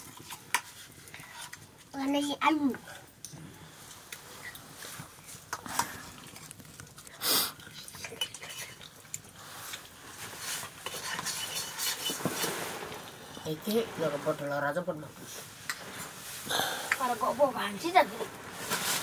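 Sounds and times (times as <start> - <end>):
metal utensils clinking on pots: 10.6 - 12.5.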